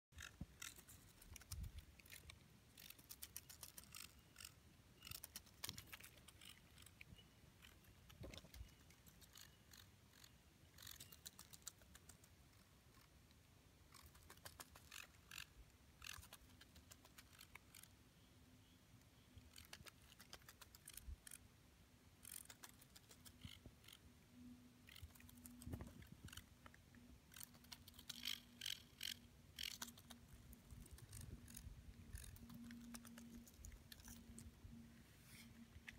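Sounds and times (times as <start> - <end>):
faint low hum: 0.2 - 35.9.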